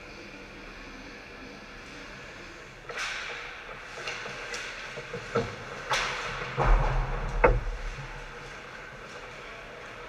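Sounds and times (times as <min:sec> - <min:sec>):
sticks and puck clacking on ice: 0:02.9 - 0:06.7
low thump: 0:06.6 - 0:08.4.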